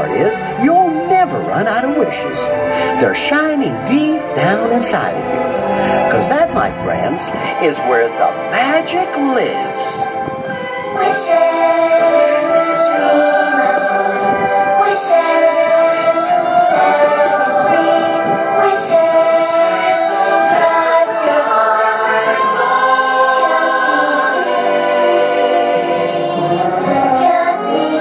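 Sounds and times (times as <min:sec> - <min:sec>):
choir singing held notes: 0:00.0 - 0:28.0
instrumental backing music: 0:00.0 - 0:28.0.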